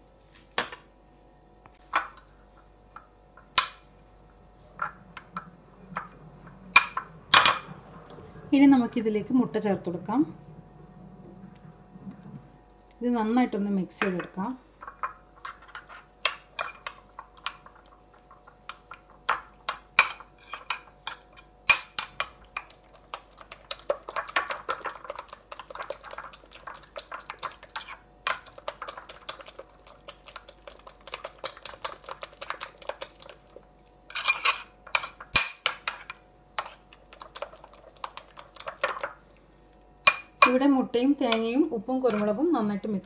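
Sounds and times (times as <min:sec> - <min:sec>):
spoon clinking against bowl: 0:40.1 - 0:40.6.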